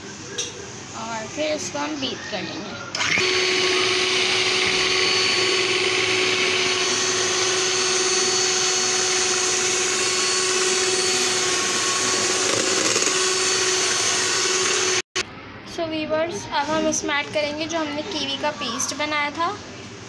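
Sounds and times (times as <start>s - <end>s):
electric hand mixer whining: 2.9s - 15.2s.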